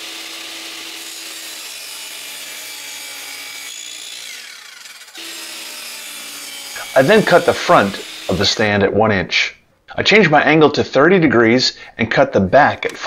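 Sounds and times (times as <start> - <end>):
miter saw cutting wood: 0.0 - 9.0
saw blade winding down whine: 3.2 - 8.8.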